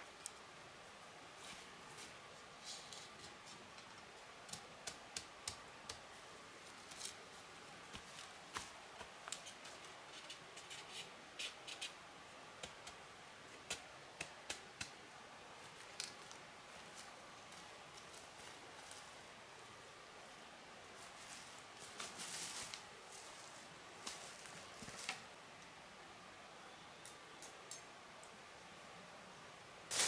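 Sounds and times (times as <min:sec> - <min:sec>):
faint steady hiss: 0:00.0 - 0:30.0
hands clicking and snapping material: 0:04.5 - 0:06.0, 0:13.6 - 0:15.0.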